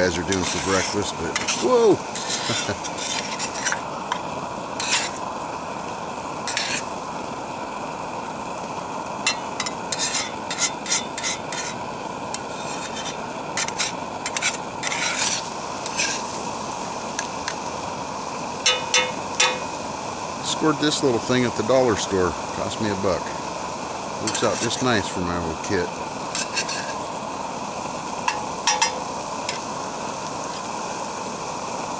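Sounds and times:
spatula scraping a pan: 0:00.0 - 0:04.2, 0:04.8 - 0:05.3, 0:06.4 - 0:06.9, 0:09.3 - 0:16.4, 0:24.2 - 0:24.8, 0:26.3 - 0:27.1
food sizzling in a frying pan: 0:00.0 - 0:31.9.

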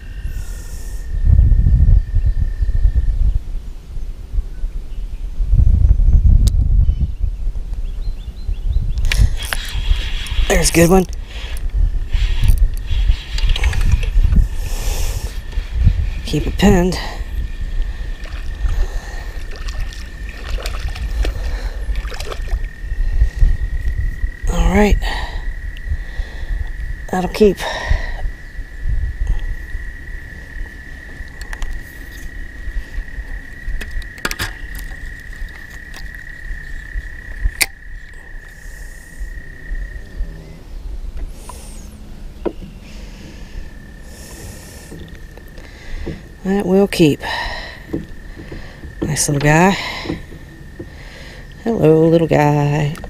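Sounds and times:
wind rumble on microphone: 0:00.0 - 0:53.0
fish splashing in water: 0:17.8 - 0:22.9
sharp clicks: 0:37.5 - 0:37.8.

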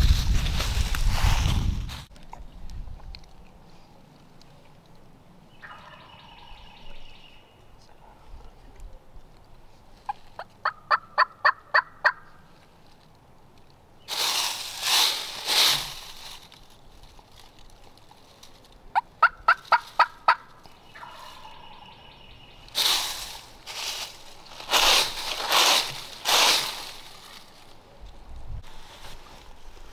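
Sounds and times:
raspy turkey calls: 0:05.5 - 0:07.7, 0:10.0 - 0:12.5, 0:18.9 - 0:22.9
turkey call yelps: 0:10.4 - 0:12.3, 0:18.9 - 0:22.1.

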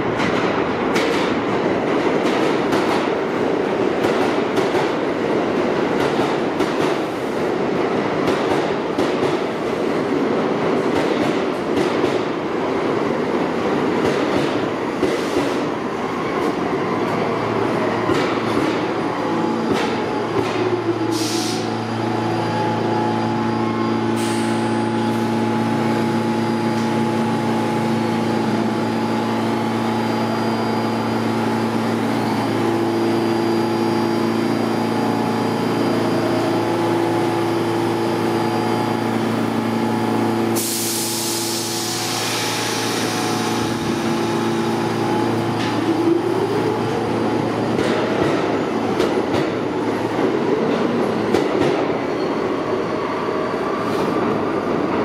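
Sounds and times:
subway train hum: 0:00.0 - 0:55.0
air hissing: 0:21.0 - 0:21.8, 0:24.1 - 0:25.3, 0:40.5 - 0:44.3.

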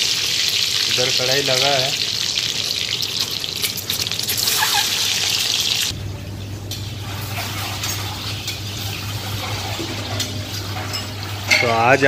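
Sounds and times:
eggs sizzling in hot oil: 0:00.0 - 0:06.0, 0:06.7 - 0:12.0
low steady hum: 0:05.9 - 0:12.0.

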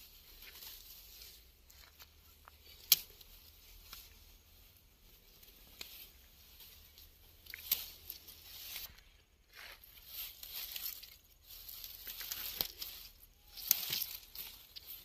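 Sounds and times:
grass and stems rustling: 0:00.0 - 0:15.0
stems snapping: 0:01.7 - 0:04.2, 0:06.9 - 0:08.9, 0:10.4 - 0:15.0.

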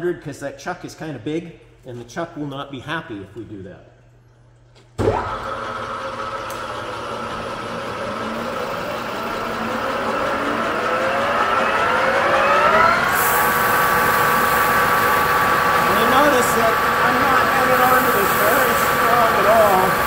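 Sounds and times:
lathe gear whine: 0:05.2 - 0:20.0
sanding belt hiss on shaft: 0:13.2 - 0:20.0.

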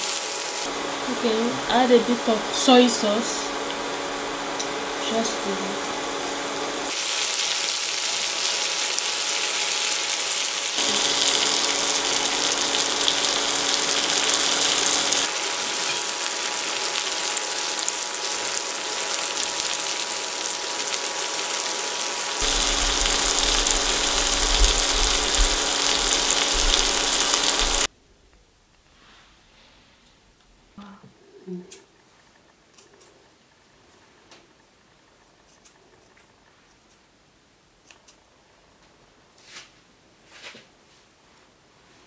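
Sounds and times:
vegetables sizzling in a frying pan: 0:00.0 - 0:27.9
faint steady hum: 0:22.4 - 0:39.4.

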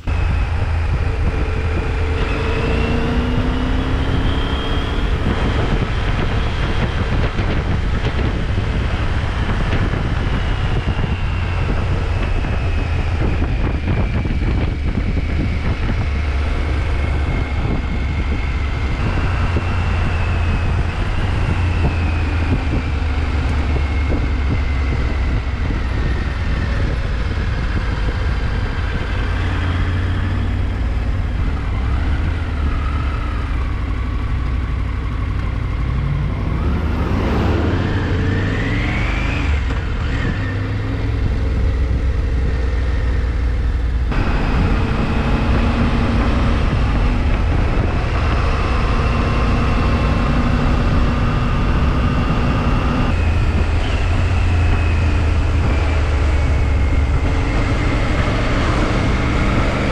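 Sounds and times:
motorcycle engine rumbling: 0:00.0 - 0:59.9.

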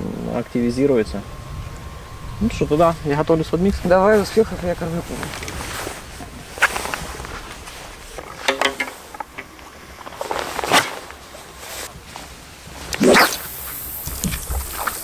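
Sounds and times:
short clicks and knocks: 0:08.2 - 0:09.5.

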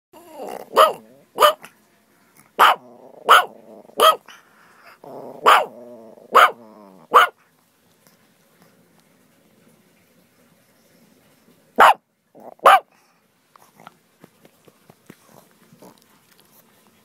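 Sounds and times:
dog growling: 0:00.2 - 0:01.7, 0:02.4 - 0:07.3, 0:12.4 - 0:12.8, 0:15.2 - 0:16.6
small dog barking: 0:00.5 - 0:01.7, 0:02.6 - 0:04.4, 0:05.3 - 0:07.4, 0:11.8 - 0:12.9.

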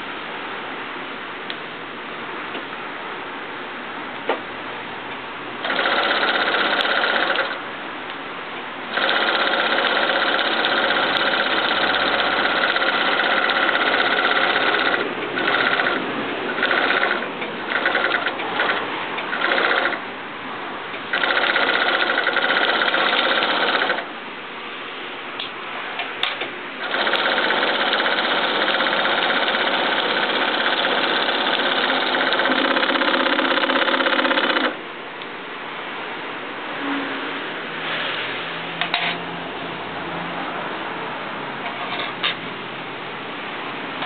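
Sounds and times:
quiet steady machine whir: 0:00.0 - 0:37.8
industrial sewing machine sewing: 0:05.6 - 0:07.6, 0:08.9 - 0:20.0, 0:21.1 - 0:24.1, 0:26.8 - 0:34.8.

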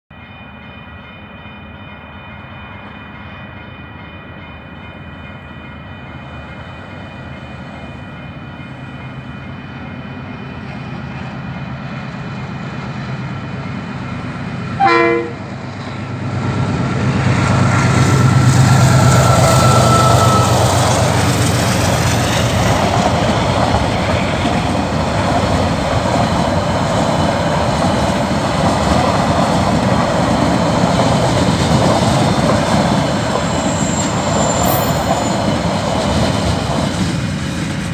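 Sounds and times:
diesel locomotive engine: 0:00.1 - 0:37.9
train wheel noise: 0:01.2 - 0:37.9
train horn blast: 0:14.8 - 0:15.6, 0:18.8 - 0:21.2.

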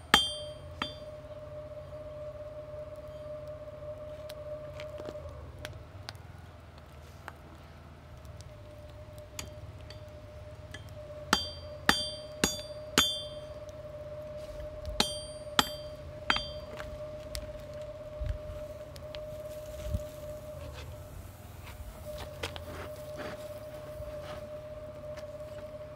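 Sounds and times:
whining hum: 0:00.0 - 0:25.9
hammer striking anvil: 0:00.1 - 0:01.1, 0:10.7 - 0:13.5, 0:15.0 - 0:16.7.

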